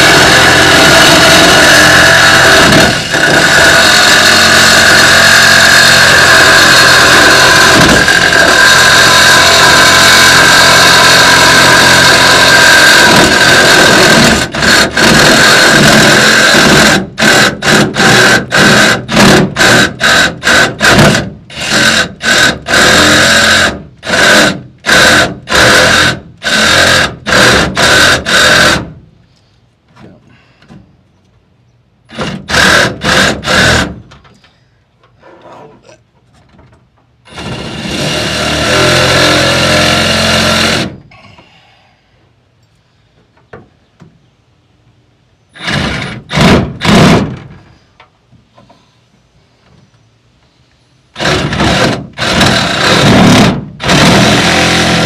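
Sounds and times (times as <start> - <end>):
reciprocating saw cutting metal: 0.0 - 28.9, 51.2 - 55.0.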